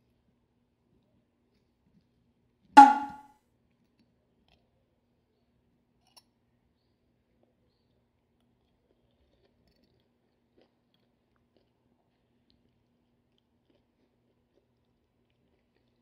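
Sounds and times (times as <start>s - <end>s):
cutlery clinking on a ceramic plate: 2.8s - 3.2s.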